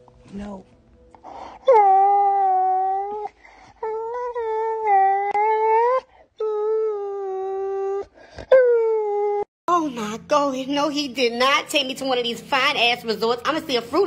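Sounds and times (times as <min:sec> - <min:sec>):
dog whining and howling: 0:01.4 - 0:09.5.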